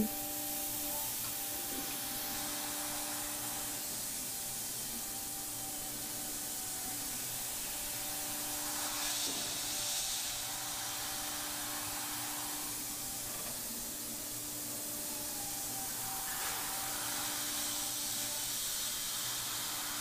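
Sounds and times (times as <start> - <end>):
cnc router humming: 0.0 - 20.0
cutter hiss: 0.0 - 20.0.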